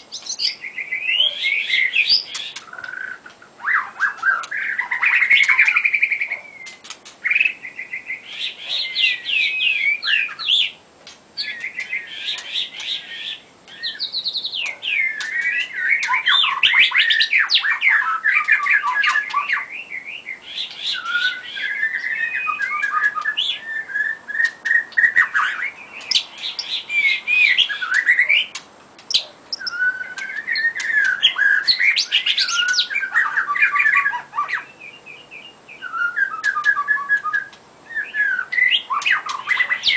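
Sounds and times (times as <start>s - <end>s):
bird singing whistled song: 0.0s - 10.8s, 11.4s - 39.9s.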